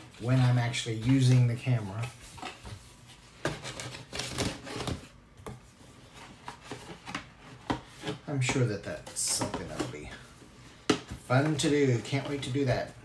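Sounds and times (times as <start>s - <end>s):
boxes and packaging handled: 0.0s - 13.0s.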